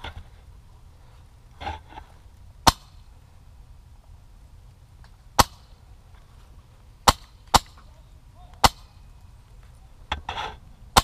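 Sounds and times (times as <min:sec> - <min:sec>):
airsoft gun shots: 0:02.6 - 0:03.0, 0:05.4 - 0:05.7, 0:07.0 - 0:07.9, 0:08.6 - 0:09.0.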